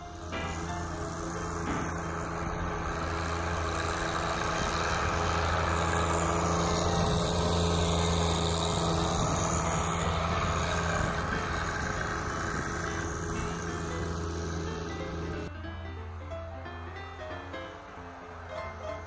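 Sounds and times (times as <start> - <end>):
loader bucket pushing snow: 0.0 - 15.5, 16.3 - 19.0
tractor diesel engine running: 0.0 - 19.0.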